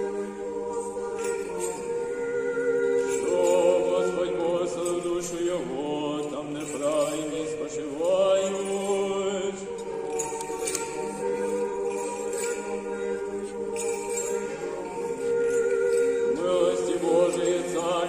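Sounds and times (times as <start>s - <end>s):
choir singing a chant: 0.0s - 18.0s.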